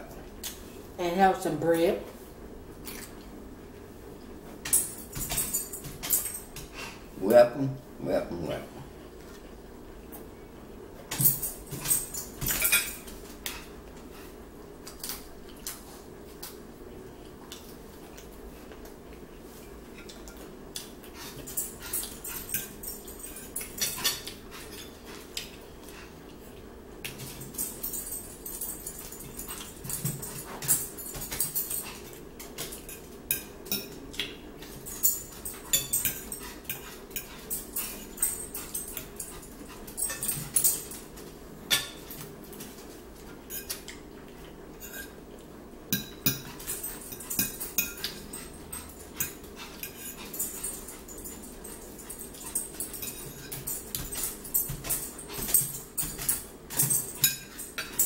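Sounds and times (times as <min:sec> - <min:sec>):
chewing and mouth sounds: 0:02.8 - 0:03.4
fork clinking on a plate: 0:44.8 - 0:45.2.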